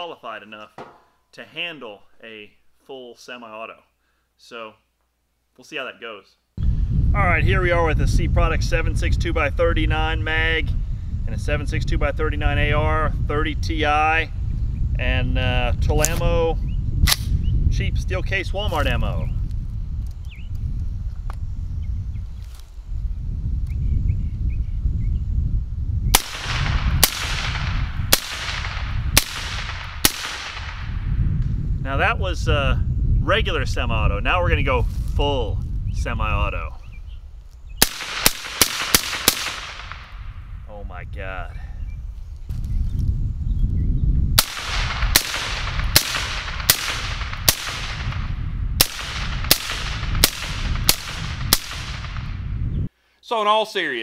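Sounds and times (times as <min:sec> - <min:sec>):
suppressed rifle shots: 0:26.2 - 0:31.0, 0:37.8 - 0:40.2, 0:44.4 - 0:52.4.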